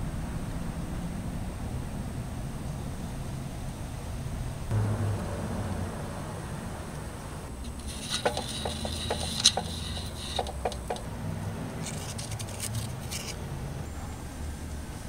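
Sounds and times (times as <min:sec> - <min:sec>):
steady low rumble: 0:00.0 - 0:13.1
metal parts clicking and tapping: 0:07.6 - 0:11.0
thin steel gaskets rattling: 0:07.6 - 0:11.1, 0:11.8 - 0:13.4.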